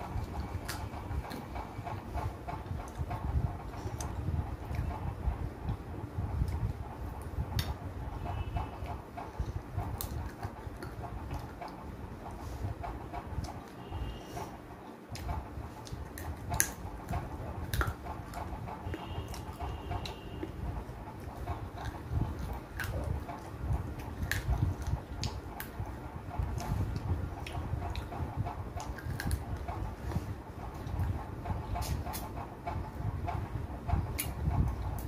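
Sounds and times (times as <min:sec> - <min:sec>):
person chewing: 0:00.0 - 0:02.1, 0:15.2 - 0:20.6, 0:21.3 - 0:31.0.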